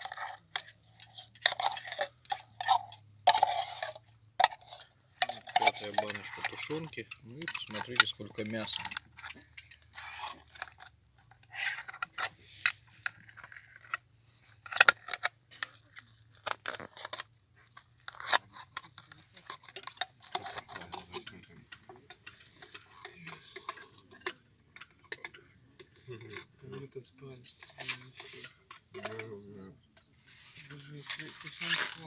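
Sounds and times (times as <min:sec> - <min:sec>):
metal ladle scraping pot: 0:00.0 - 0:32.0.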